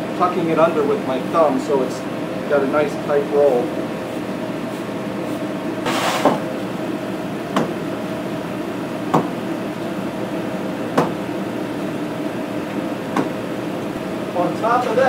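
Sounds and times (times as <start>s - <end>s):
steady machine hum: 0.0s - 15.0s
brief scrape: 5.8s - 6.4s
knife knocks on wooden bench: 7.5s - 7.8s, 9.1s - 9.3s, 11.0s - 11.2s, 13.1s - 13.4s.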